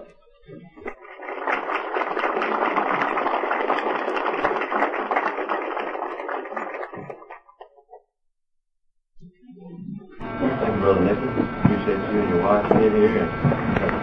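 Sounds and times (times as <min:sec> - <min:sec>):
audience applauding: 0:00.9 - 0:07.5.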